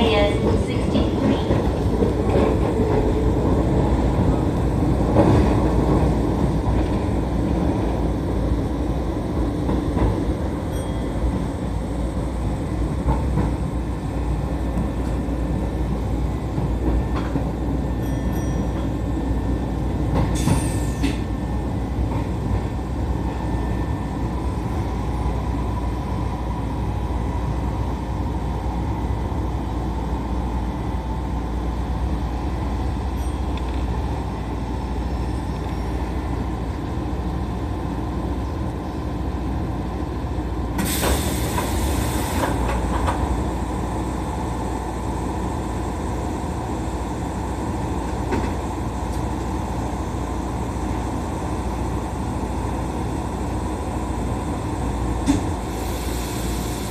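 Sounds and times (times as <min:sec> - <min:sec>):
train wheels and motors rumbling: 0:00.0 - 0:56.9
air hiss: 0:55.7 - 0:56.9.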